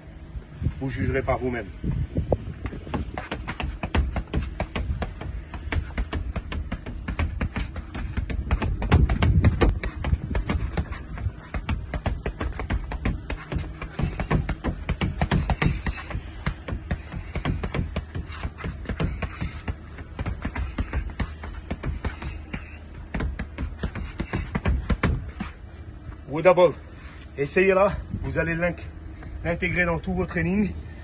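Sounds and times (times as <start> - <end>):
fists punching a punching ball: 2.6 - 25.5.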